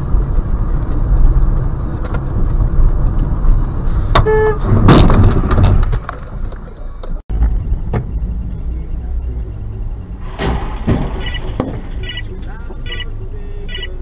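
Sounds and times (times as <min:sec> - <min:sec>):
car interior road rumble: 0:00.0 - 0:14.0
car horn blast: 0:04.2 - 0:04.8.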